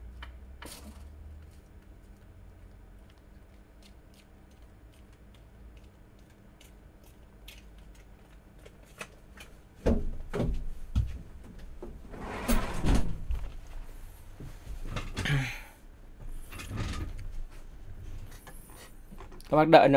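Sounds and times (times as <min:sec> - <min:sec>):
rustling scraping noise: 0:12.0 - 0:15.2.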